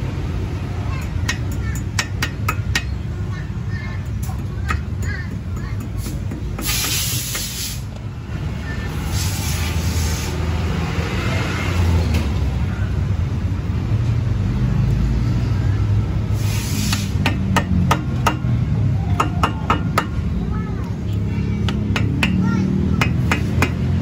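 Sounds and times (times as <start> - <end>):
hammer tapping on metal: 1.0 - 3.1, 4.0 - 7.5, 16.9 - 20.2, 21.6 - 24.0
hissing bursts: 5.9 - 8.0, 9.0 - 10.5, 16.3 - 17.4.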